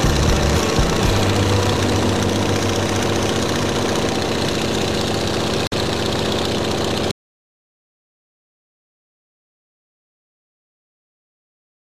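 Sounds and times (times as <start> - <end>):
airplane engine running: 0.0 - 7.1.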